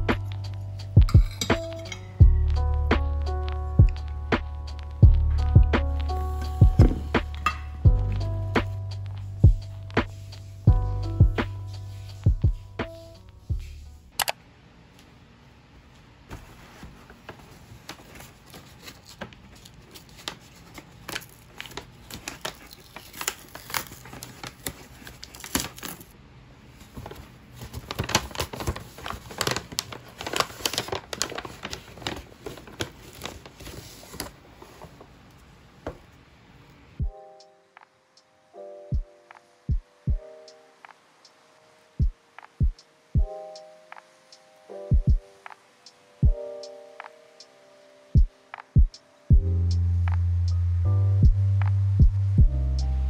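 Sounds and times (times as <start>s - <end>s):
paper bag rustling and crinkling: 16.3s - 35.3s.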